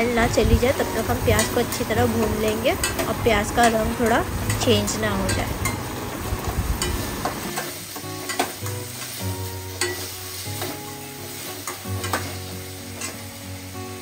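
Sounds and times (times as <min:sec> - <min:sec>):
onion sizzling in hot oil: 0:00.0 - 0:14.0
quiet background music: 0:00.0 - 0:14.0
spatula clacking against pan: 0:02.8 - 0:03.8, 0:06.8 - 0:09.1, 0:09.7 - 0:10.8.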